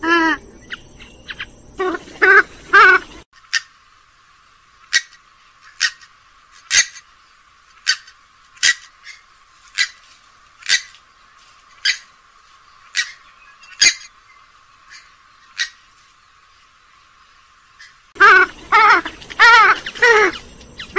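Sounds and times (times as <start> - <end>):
bird giving sharp call notes: 18.2 - 20.9.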